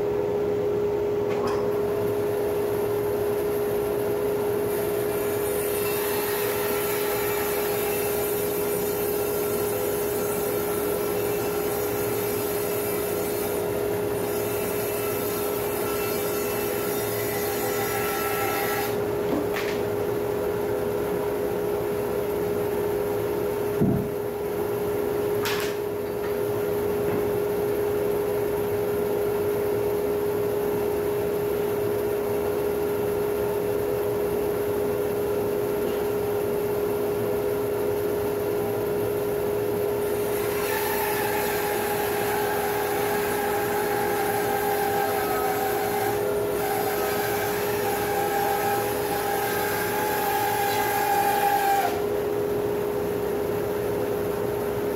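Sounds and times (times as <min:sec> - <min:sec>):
bandsaw humming: 0:04.8 - 0:19.0, 0:40.0 - 0:52.2
saw blade whining through wood: 0:05.1 - 0:19.0, 0:40.0 - 0:52.1
thump: 0:23.8 - 0:24.2.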